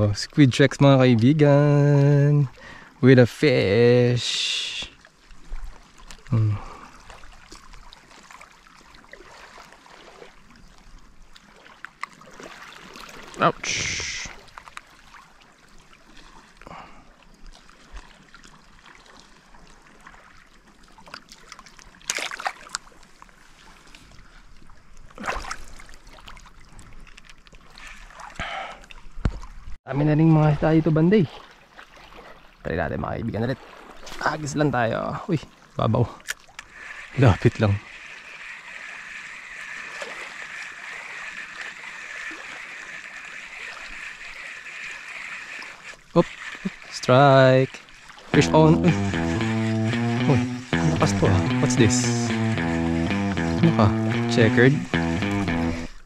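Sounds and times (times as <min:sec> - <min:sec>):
seawater lapping over rocks: 0:04.9 - 0:29.6, 0:33.5 - 0:48.4
high-pitched hum: 0:48.4 - 0:56.0.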